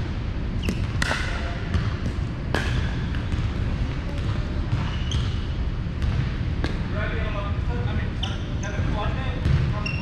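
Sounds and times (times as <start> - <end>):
steady low hum: 0.0 - 10.0
ball bouncing on hardwood court: 0.6 - 5.4, 6.0 - 6.8, 9.4 - 9.8.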